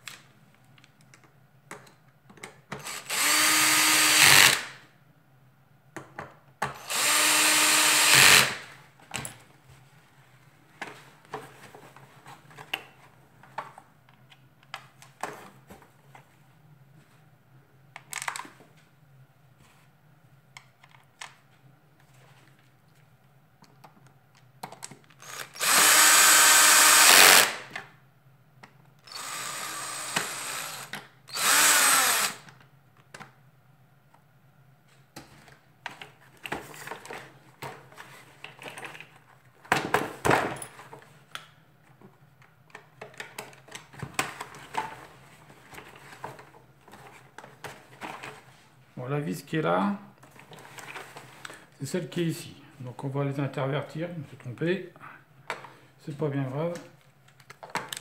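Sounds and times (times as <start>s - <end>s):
electric screwdriver motor: 2.8s - 4.7s, 6.8s - 8.6s, 25.2s - 27.6s, 29.1s - 32.5s
clicks and knocks of parts: 23.6s - 25.2s, 35.2s - 45.0s, 56.8s - 58.0s.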